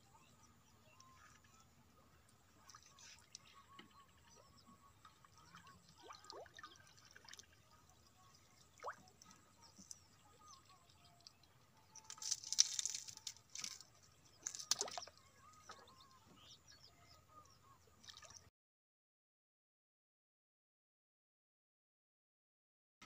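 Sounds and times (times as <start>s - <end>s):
water splashing and dripping: 5.0s - 7.6s, 8.6s - 10.0s, 11.1s - 15.8s, 18.0s - 18.4s.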